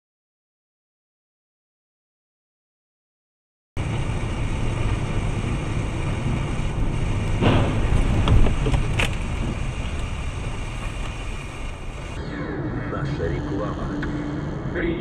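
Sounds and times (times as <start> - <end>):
car road and engine rumble: 3.8 - 12.2.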